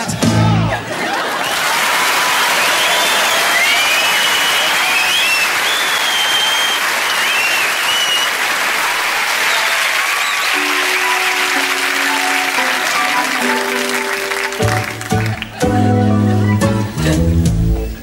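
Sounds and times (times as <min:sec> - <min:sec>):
audience applauding: 0:00.7 - 0:17.3
whistles and cheers: 0:01.1 - 0:14.9.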